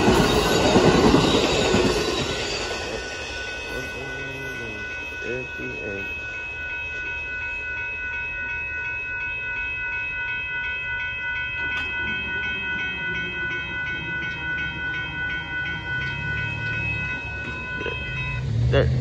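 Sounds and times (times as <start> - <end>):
crossing warning bell dinging: 0.0 - 19.0.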